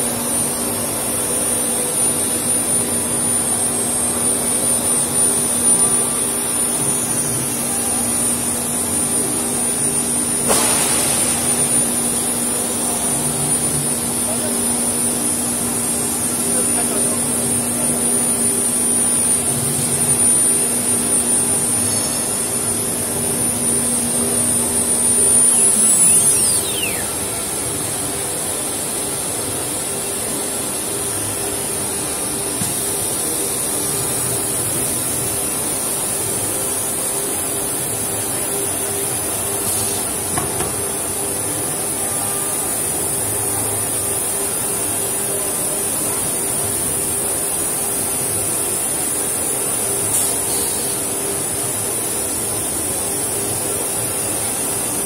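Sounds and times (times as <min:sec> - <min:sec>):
router spindle high whine: 0:00.0 - 0:43.7
steady hum: 0:00.0 - 0:55.0.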